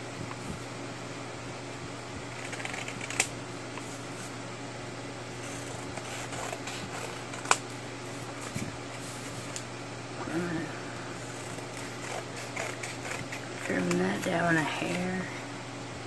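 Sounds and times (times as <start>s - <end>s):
steady low hum: 0.0s - 16.0s
paper rustling: 5.4s - 7.6s.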